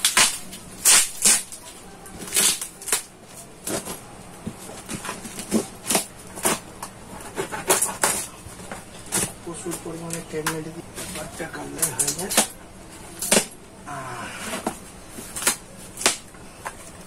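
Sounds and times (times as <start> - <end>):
packing tape ripping: 0.0 - 4.0, 4.8 - 8.4, 10.1 - 13.6, 14.4 - 16.3
cardboard rustling: 0.0 - 13.6.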